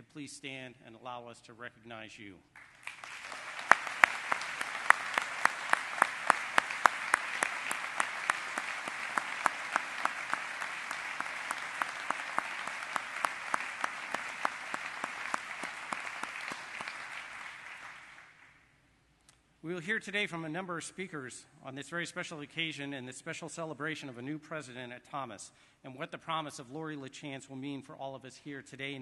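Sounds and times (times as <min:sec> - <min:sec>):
audience applauding: 0:02.6 - 0:18.6.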